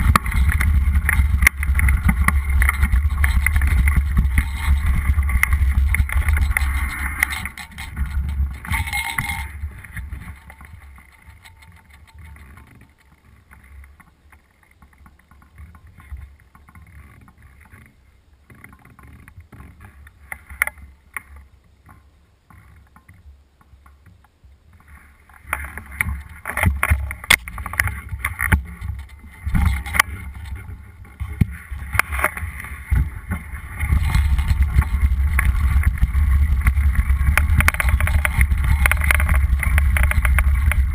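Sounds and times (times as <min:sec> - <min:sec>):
wind rush on microphone: 0:00.0 - 0:12.5, 0:24.8 - 0:40.9
bike rattling and knocking: 0:00.0 - 0:17.9, 0:25.3 - 0:40.9
faint rustle: 0:00.0 - 0:40.9.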